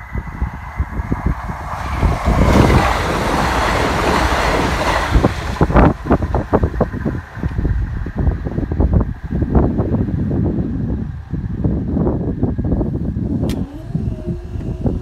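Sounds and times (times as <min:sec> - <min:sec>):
diesel train passing at speed: 0:00.0 - 0:15.0
wind buffeting microphone: 0:00.0 - 0:15.0.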